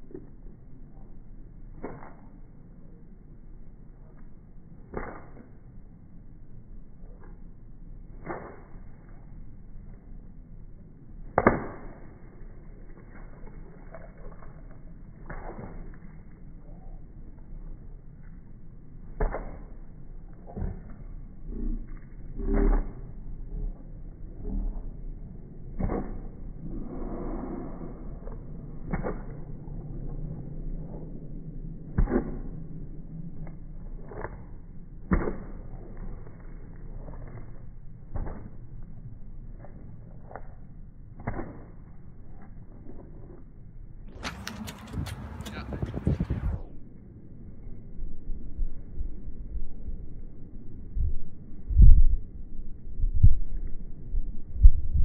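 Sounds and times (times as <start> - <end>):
low steady rumble: 0.0 - 55.0
heavy footsteps on wet concrete: 33.4 - 43.4, 44.2 - 46.6.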